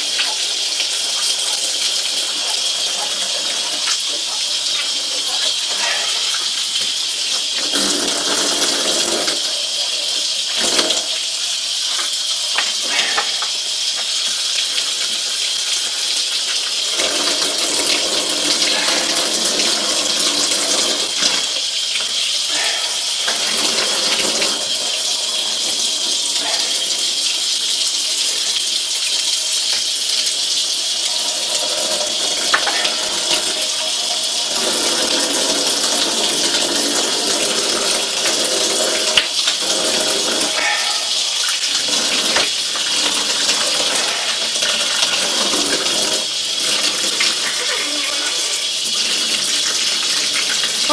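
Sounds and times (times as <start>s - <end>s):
water splashing on chicken: 0.0s - 11.2s, 14.6s - 25.0s, 31.1s - 33.6s, 34.5s - 50.9s
tap water running into metal sink: 0.0s - 50.9s.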